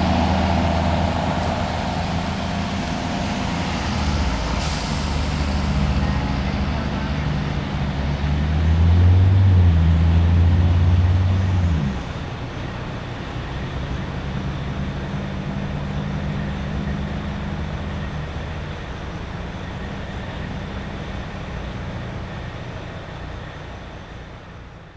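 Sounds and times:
road noise: 0.0s - 24.9s
truck engine droning: 0.0s - 24.9s.

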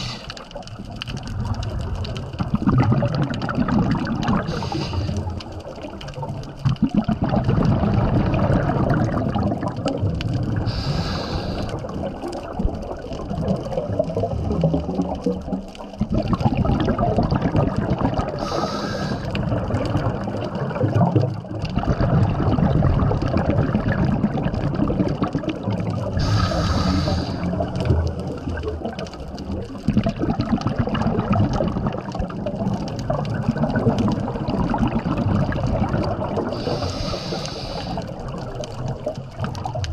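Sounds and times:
diver inhaling through regulator: 0.0s - 0.5s, 4.4s - 5.3s, 10.7s - 11.9s, 18.4s - 19.4s, 26.2s - 27.6s, 36.5s - 38.2s
exhaled bubbles rumbling: 0.0s - 39.9s.

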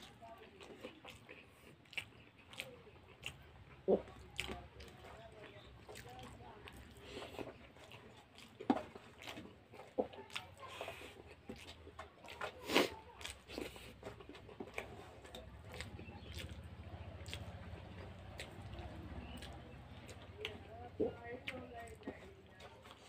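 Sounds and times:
chewing with wet smacks: 0.0s - 23.0s.

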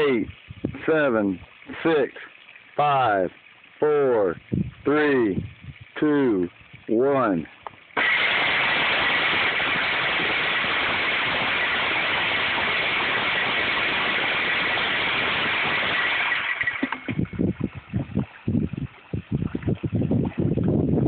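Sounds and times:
water splashing: 0.0s - 20.7s
fish feeder motor whirring: 7.8s - 19.4s.

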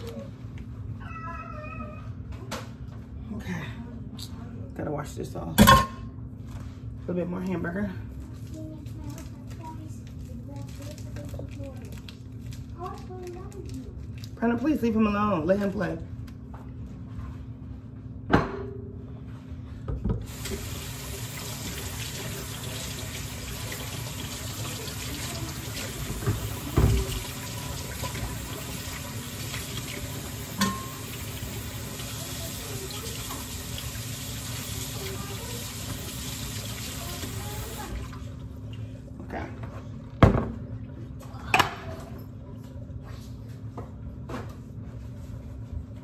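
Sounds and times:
tap water running into sink: 20.2s - 38.3s
knocks and clatters at sink: 25.9s - 28.4s.

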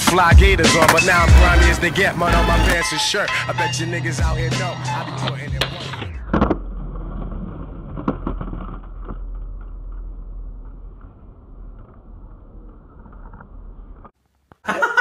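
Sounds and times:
skateboard knocking on concrete: 0.0s - 2.8s
skateboard wheels rolling: 0.0s - 14.2s.

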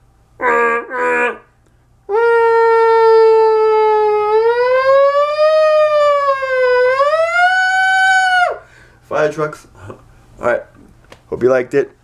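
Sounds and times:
man imitating a siren: 0.4s - 1.5s, 2.1s - 8.7s.

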